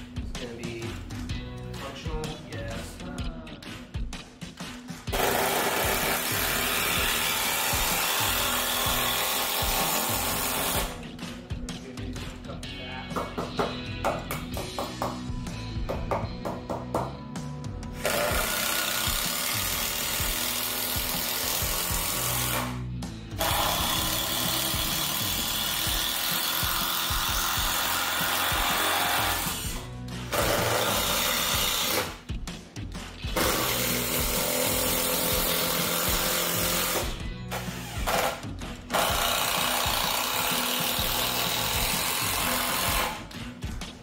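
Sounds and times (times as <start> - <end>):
background music: 0.0 - 44.0
drill running into wood: 5.1 - 11.0, 18.0 - 22.8, 23.4 - 32.2, 33.4 - 43.2.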